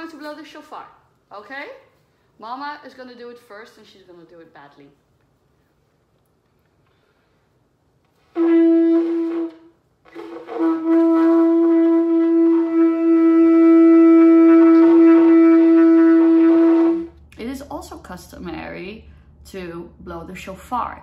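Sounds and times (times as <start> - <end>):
shofar blasts: 8.2 - 17.3.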